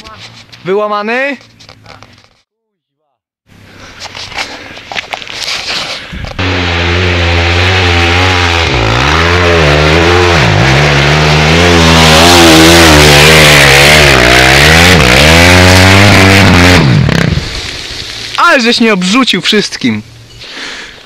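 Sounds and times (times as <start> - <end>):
dirt bike engine revving: 6.4 - 18.3.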